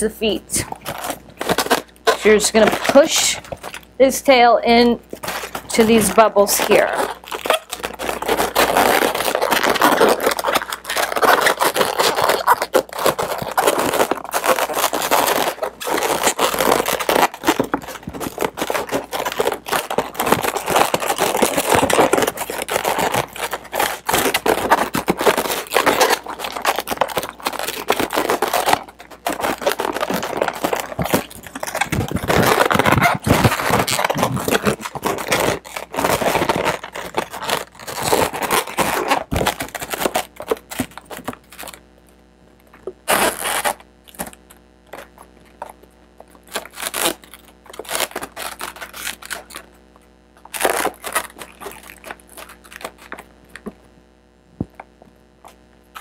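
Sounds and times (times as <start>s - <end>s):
balloons rubbing and scraping: 0.0s - 41.8s, 43.0s - 49.8s.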